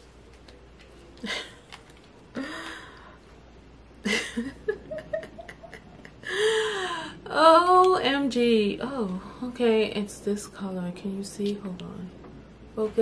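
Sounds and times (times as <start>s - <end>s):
stifled chuckling: 4.0s - 6.4s.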